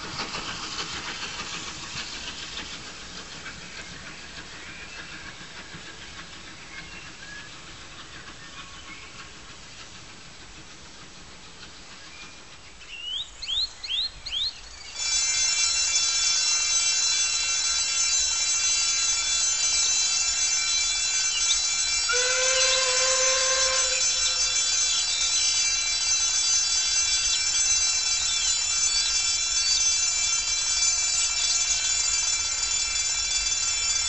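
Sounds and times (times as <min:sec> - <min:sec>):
steam locomotive whistle: 0:21.9 - 0:25.4.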